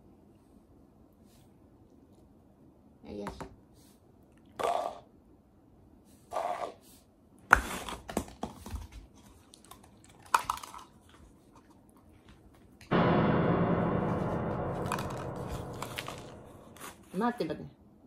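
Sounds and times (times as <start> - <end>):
loud sustained tone: 12.9 - 16.9.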